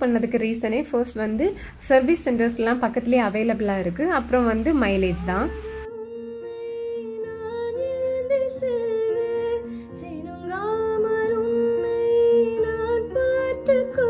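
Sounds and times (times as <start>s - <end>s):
song with sliding sung melody: 5.0s - 14.0s.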